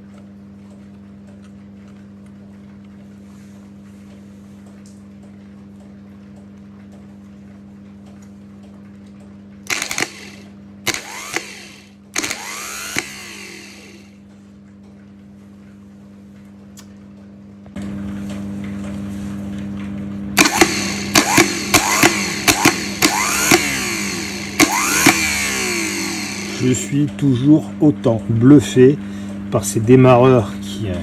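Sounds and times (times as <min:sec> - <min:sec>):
starter motor whirring: 0:09.6 - 0:14.2, 0:20.4 - 0:27.0
solenoid clicking: 0:09.7 - 0:13.8, 0:20.4 - 0:25.9.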